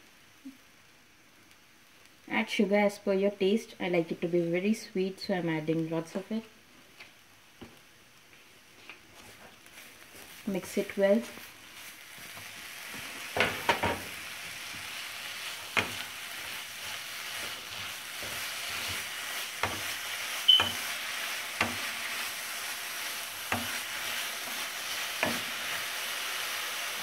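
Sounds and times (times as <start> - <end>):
carrots sizzling in a pan: 8.6 - 27.0
spatula scraping a pan: 14.6 - 25.9
short high squeak: 20.5 - 20.8.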